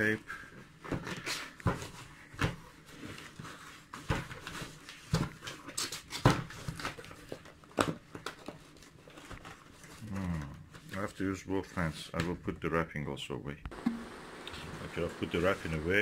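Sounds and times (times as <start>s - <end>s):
paper wrapping rustling: 2.8s - 12.0s, 14.5s - 16.0s.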